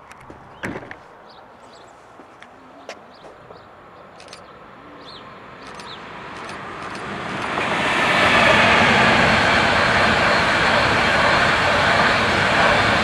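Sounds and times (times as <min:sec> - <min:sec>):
freight train passing: 0:00.0 - 0:13.0
bird chirps: 0:00.4 - 0:06.5.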